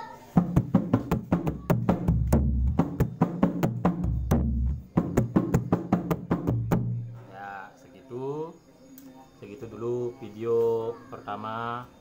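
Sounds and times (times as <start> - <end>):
drum deep open booms: 0.3 - 7.2
hand drum sharp slaps: 0.4 - 7.0.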